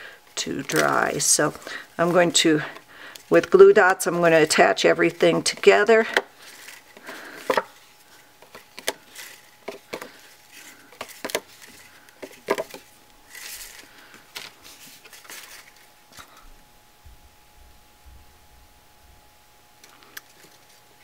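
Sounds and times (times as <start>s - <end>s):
paper sliding: 6.4s - 15.9s.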